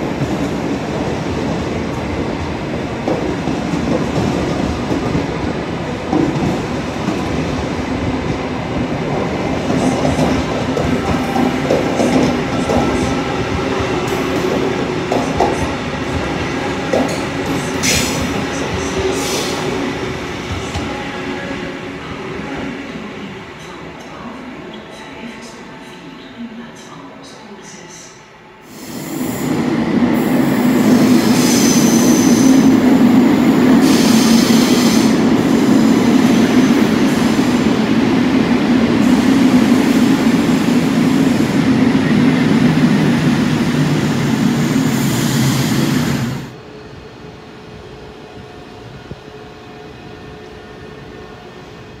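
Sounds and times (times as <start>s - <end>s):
electric train rumbling: 0.0s - 52.0s
train wheel squeal: 31.4s - 32.6s.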